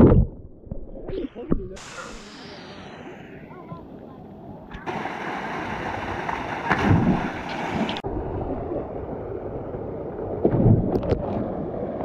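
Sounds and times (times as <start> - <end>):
rushing water: 1.8 - 12.0
water splashing: 4.7 - 12.0
person jumping into water: 4.8 - 8.0.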